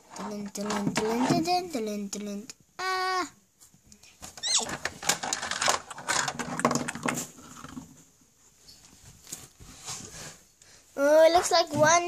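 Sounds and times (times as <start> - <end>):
plastic toy horses clattering: 0.1 - 1.6, 4.6 - 8.0.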